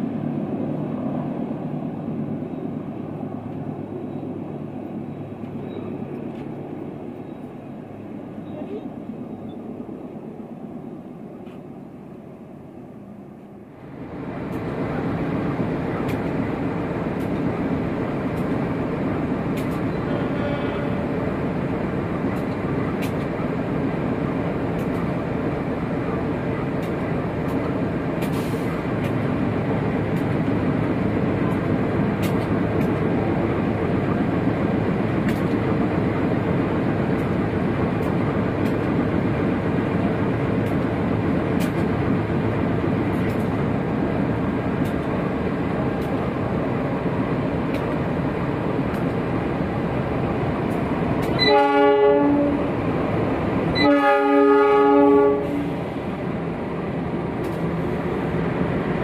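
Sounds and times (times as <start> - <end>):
train engine and wheels rumbling: 0.0 - 59.0
locomotive horn: 20.1 - 21.0, 51.4 - 52.8, 53.7 - 55.7.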